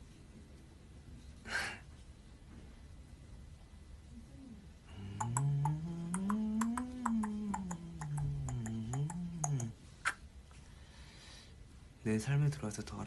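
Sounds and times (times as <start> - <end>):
man humming a slow tune: 4.2 - 9.8.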